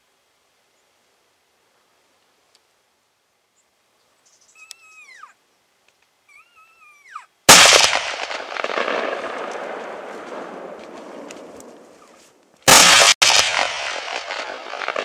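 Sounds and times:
high falling calls: 4.2 - 5.5, 6.2 - 12.4
rifle shot with rolling echo: 7.5 - 15.0.

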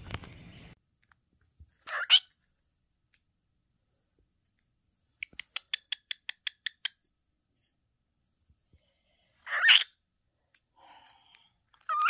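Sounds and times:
pet animal chirping: 1.8 - 2.4, 5.2 - 7.1, 9.4 - 10.0, 11.8 - 12.0.

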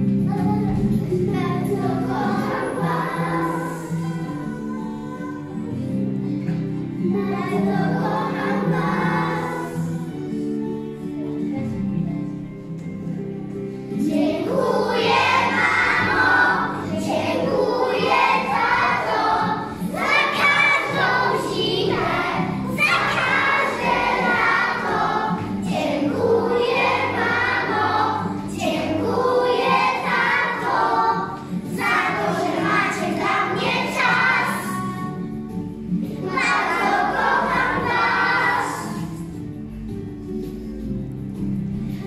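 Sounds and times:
children singing in unison: 0.4 - 5.8, 7.0 - 10.3, 14.0 - 35.2, 36.2 - 39.4.

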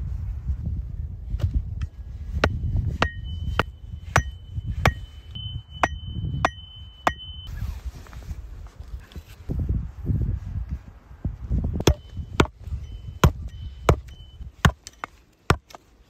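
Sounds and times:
axe pounding wooden stake: 2.4 - 5.1, 11.8 - 12.6, 13.2 - 15.8
metallic ring of axe head: 3.0 - 7.5.

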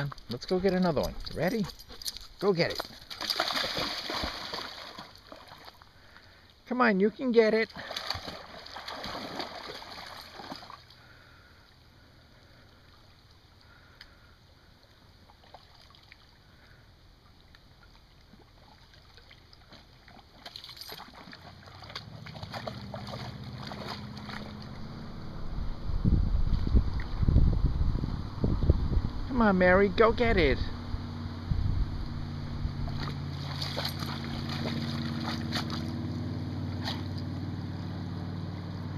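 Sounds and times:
dog splashing through water: 0.0 - 5.8, 7.7 - 11.0, 17.9 - 25.0, 32.8 - 37.4
water lapping: 0.0 - 6.6, 7.6 - 25.2, 32.7 - 37.3
low rumble: 21.9 - 38.9.

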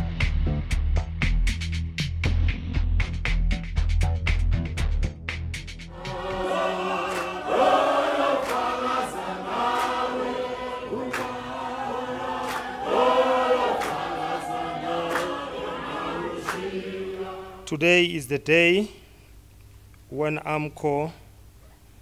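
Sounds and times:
men singing and chanting: 5.9 - 17.8
hand claps: 6.4 - 16.8.

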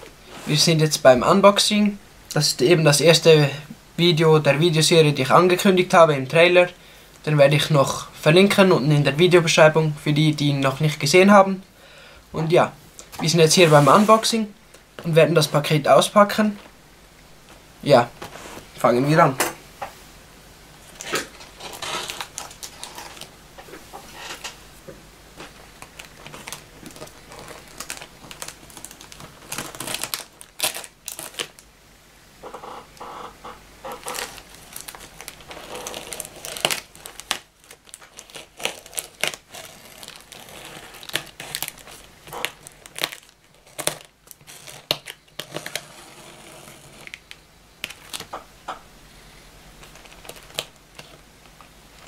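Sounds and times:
plastic wrap crinkling and tearing: 20.8 - 23.4, 25.4 - 31.7, 32.4 - 48.5, 49.7 - 52.0.

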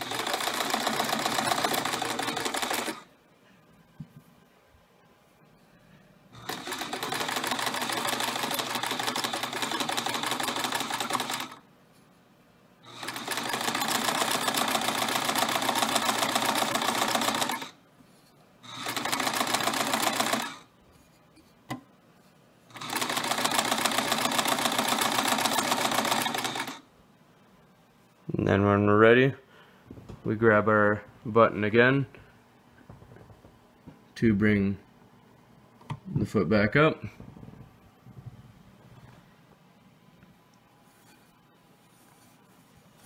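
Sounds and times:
sewing machine stitching: 0.0 - 3.1, 6.4 - 11.6, 12.8 - 17.8, 18.7 - 20.7, 22.7 - 26.8.

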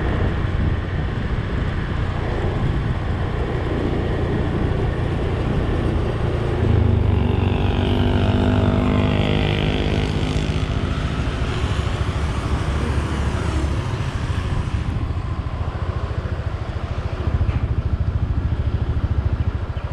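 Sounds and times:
road noise: 0.0 - 19.9
vehicle engine rumble: 0.0 - 19.9.

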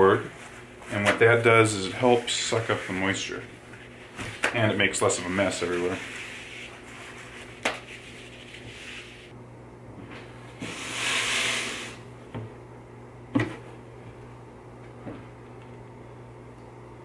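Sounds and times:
paper towels rustling: 0.0 - 9.3.

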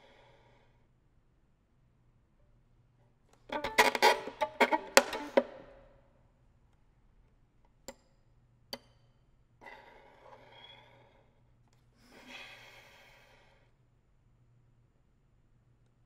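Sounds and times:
soft airy violin bow strokes: 3.5 - 5.5
sharp taps on violin: 3.6 - 5.6.

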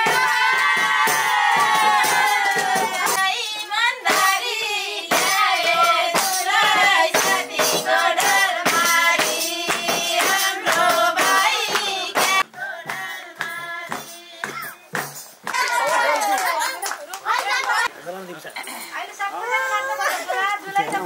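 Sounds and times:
song with singing voice: 0.0 - 15.6
steady percussion beat: 0.0 - 15.9.

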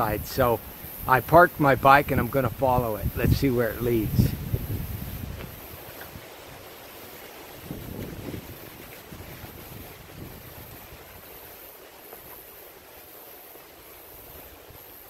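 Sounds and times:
wind buffeting microphone: 0.0 - 11.6
steady hiss: 0.0 - 15.0.

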